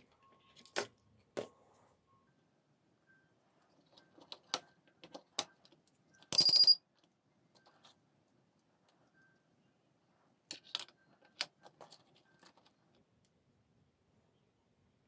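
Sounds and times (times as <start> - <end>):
high beep: 6.3 - 6.8.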